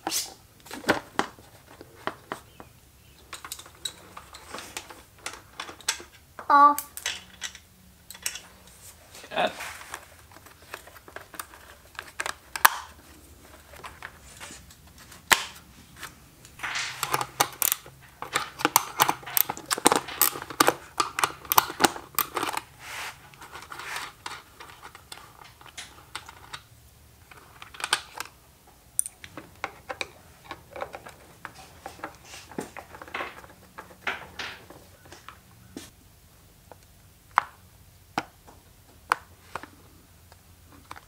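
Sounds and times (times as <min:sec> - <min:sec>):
hand tools clicking and rattling: 0:03.2 - 0:06.2, 0:06.9 - 0:08.7, 0:16.6 - 0:26.6, 0:29.0 - 0:35.3.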